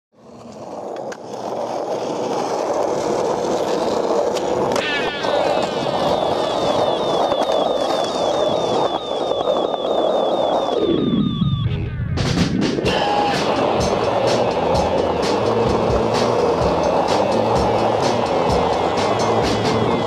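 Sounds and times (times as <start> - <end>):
skateboard wheels rolling on asphalt: 0.2 - 11.6, 12.6 - 20.0
skateboard pop: 3.6 - 10.8.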